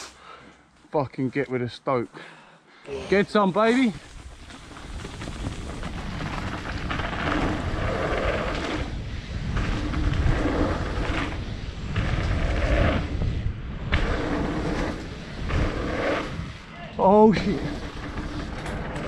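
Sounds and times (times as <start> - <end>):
bike tyres rumbling over dirt: 3.7 - 19.0
wind buffeting microphone: 4.0 - 19.0.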